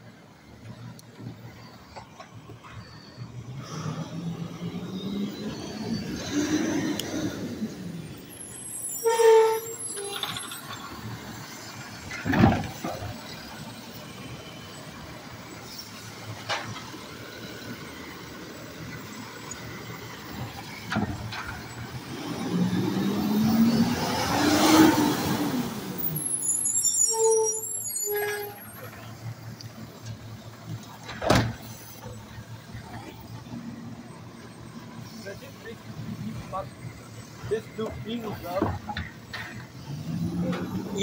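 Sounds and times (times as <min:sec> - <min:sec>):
air brakes hissing and squealing: 0:00.6 - 0:41.0
diesel engine revving: 0:03.0 - 0:27.4, 0:28.2 - 0:41.0.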